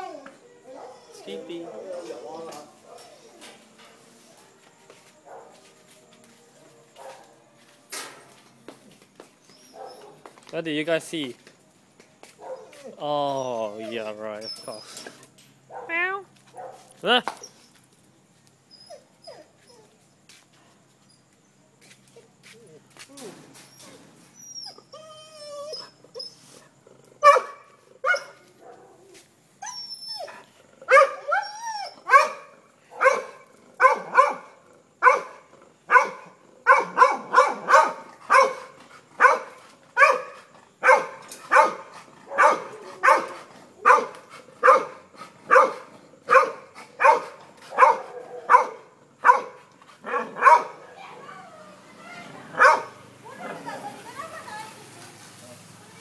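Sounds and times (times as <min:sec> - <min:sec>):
dog whining: 0:00.0 - 0:01.6, 0:23.7 - 0:26.6, 0:29.6 - 0:32.2
dog barking: 0:12.4 - 0:12.8, 0:16.6 - 0:16.9, 0:27.2 - 0:29.1, 0:30.9 - 0:31.3, 0:32.1 - 0:51.0, 0:52.5 - 0:53.0.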